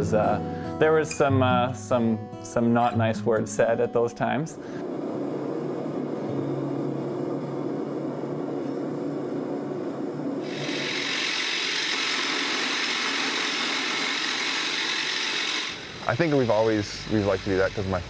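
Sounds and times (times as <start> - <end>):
loud steady hiss: 4.5 - 18.0
machine running noise: 4.8 - 18.0.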